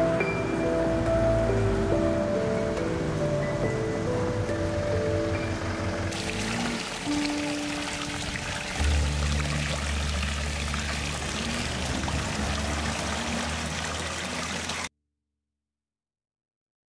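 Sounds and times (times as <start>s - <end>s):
background music with low notes: 0.0s - 13.4s
water splashing into stone basin: 6.1s - 14.9s.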